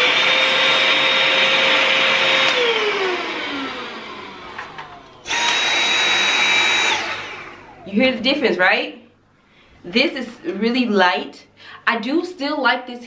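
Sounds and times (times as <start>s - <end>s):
handheld vacuum motor whining: 0.0s - 7.9s
stick vacuum high whine: 0.0s - 7.9s.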